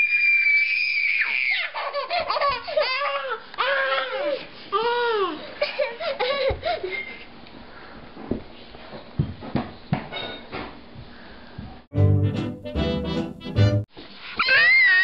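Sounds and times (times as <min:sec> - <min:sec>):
toddler screeching: 0:00.0 - 0:05.4, 0:14.4 - 0:15.0
toddler giggling: 0:01.6 - 0:04.4, 0:05.1 - 0:07.3.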